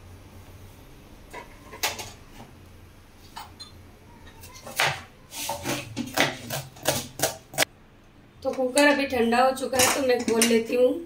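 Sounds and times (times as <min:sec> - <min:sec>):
knife chopping onion on board: 0:04.6 - 0:07.7.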